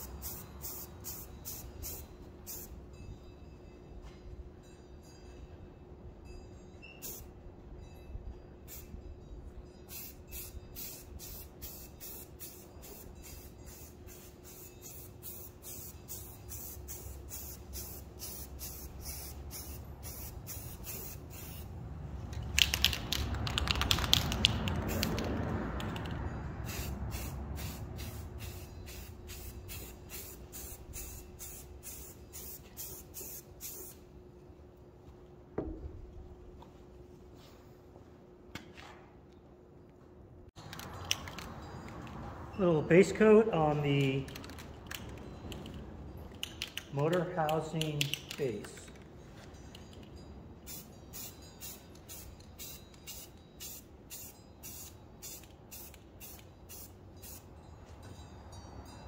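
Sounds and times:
spray paint hiss: 0.0 - 2.8, 7.0 - 7.3, 9.9 - 21.8, 26.6 - 34.0, 50.6 - 57.5.

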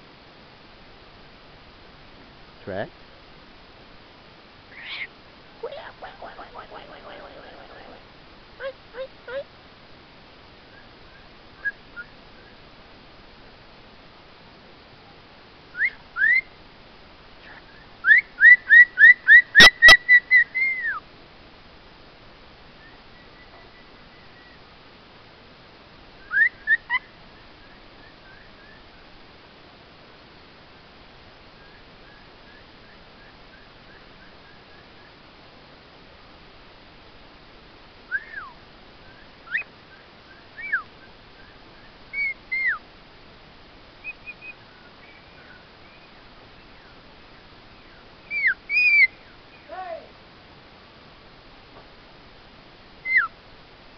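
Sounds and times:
parrot whistling: 42.2 - 42.8, 48.3 - 49.1.

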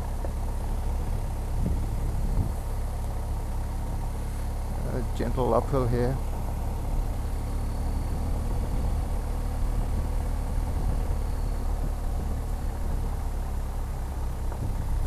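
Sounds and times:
motorcycle engine running: 0.0 - 15.0
road noise: 0.0 - 15.0
wind noise: 0.9 - 2.7, 8.1 - 13.2, 14.4 - 15.0.

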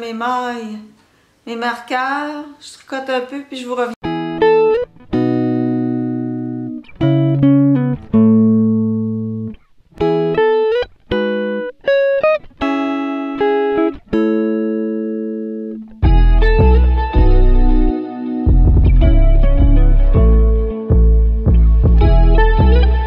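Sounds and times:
guitar playing plucked notes: 4.0 - 23.0.

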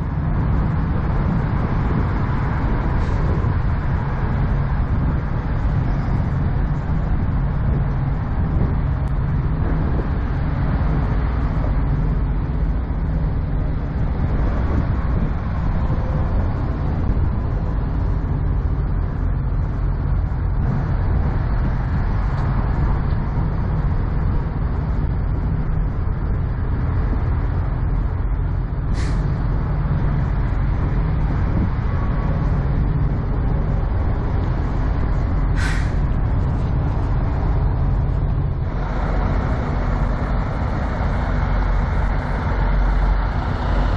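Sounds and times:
diesel truck engine idling: 0.0 - 43.9
air release hisses: 35.6 - 36.0.

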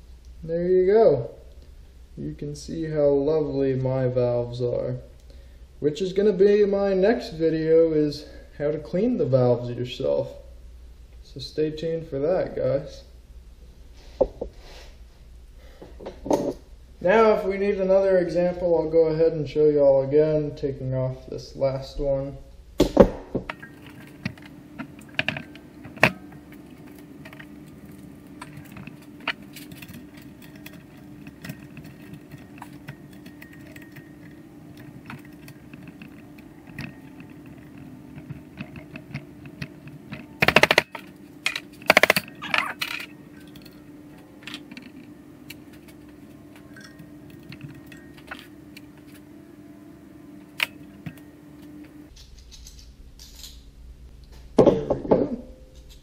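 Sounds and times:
steady low hum: 0.0 - 56.0
metal clinking and clicking: 23.5 - 49.2.

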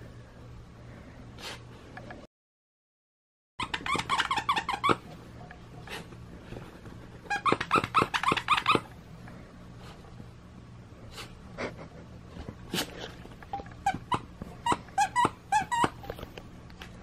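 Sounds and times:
dog toy squeaking: 3.6 - 5.2, 7.2 - 9.0, 13.4 - 16.3.

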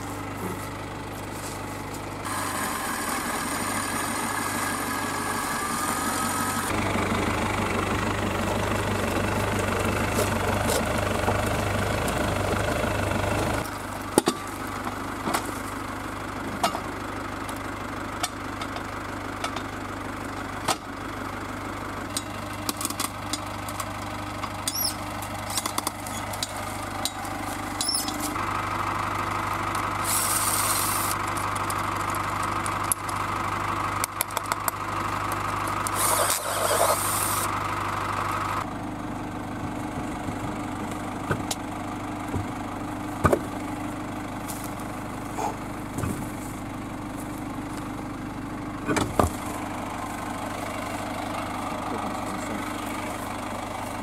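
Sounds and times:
van engine idling: 0.0 - 54.0.

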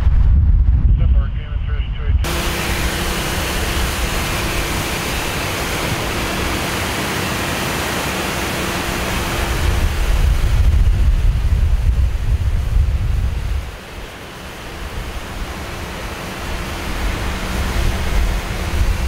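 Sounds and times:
wind rumble on microphone: 0.0 - 6.6, 9.0 - 13.8, 16.4 - 19.0
fire hose spraying water: 2.3 - 19.0.

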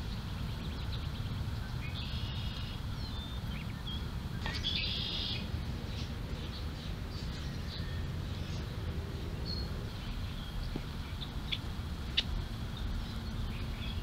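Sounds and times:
low outdoor rumble: 0.0 - 14.0
songbirds chirping: 0.0 - 14.0.

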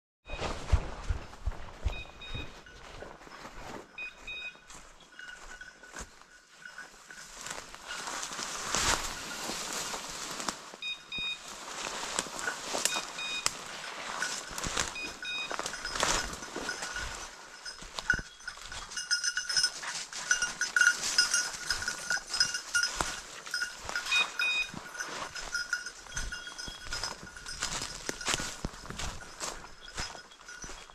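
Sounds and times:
footsteps crunching through brush: 0.3 - 30.9
dog bell jingling: 1.8 - 30.9
short high electronic beeps: 4.0 - 4.6, 12.8 - 13.6, 14.9 - 15.9, 24.0 - 24.8.

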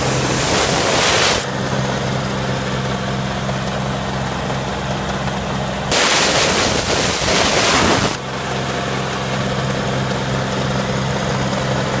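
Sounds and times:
loud hiss: 0.0 - 1.5, 5.9 - 8.2
machine engine running: 0.0 - 12.0.

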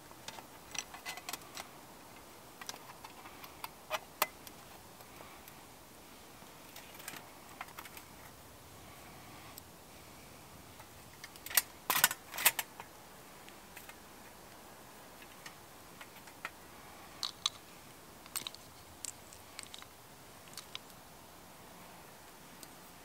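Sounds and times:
metal camp gear clicking and knocking: 0.2 - 1.7, 10.8 - 12.9.

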